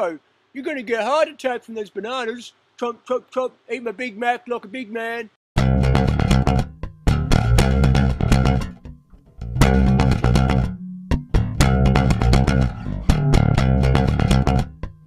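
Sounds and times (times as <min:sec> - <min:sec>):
plucked bass and guitar music: 0:05.6 - 0:15.0.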